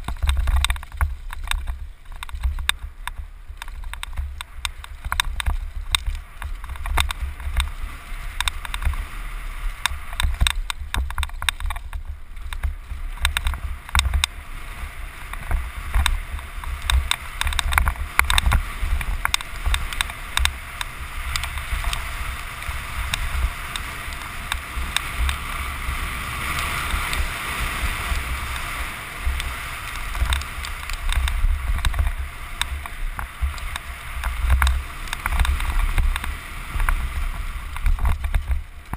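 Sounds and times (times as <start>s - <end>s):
bike chain and frame rattling: 0.0s - 38.9s
bike tyres on dirt: 0.0s - 38.9s
wind buffeting microphone: 0.0s - 38.9s.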